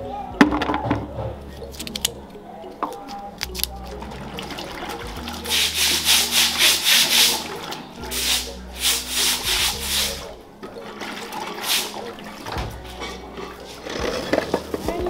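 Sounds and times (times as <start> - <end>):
coconut scraping in plastic basket: 4.8 - 10.2, 12.9 - 14.9.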